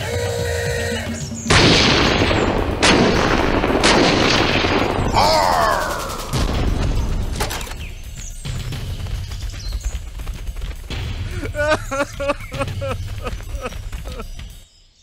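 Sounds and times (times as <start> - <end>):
music: 0.0 - 15.0
gunshot cracks: 1.5 - 5.2
explosion blast and rumble: 1.5 - 7.4.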